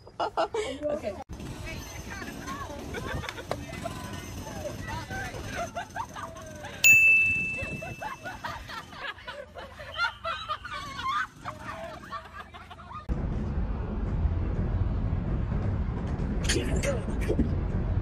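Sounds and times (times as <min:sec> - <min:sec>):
girls giggling and laughing: 0:00.0 - 0:01.2, 0:02.4 - 0:04.1, 0:05.4 - 0:13.1
chime: 0:06.8 - 0:08.4
wind rumbling on microphone: 0:13.1 - 0:18.0.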